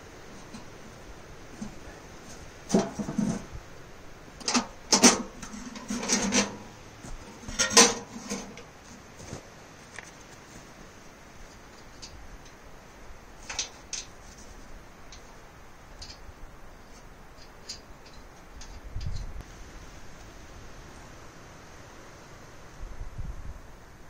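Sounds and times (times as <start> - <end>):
metal clinks and scraping: 4.4 - 8.7.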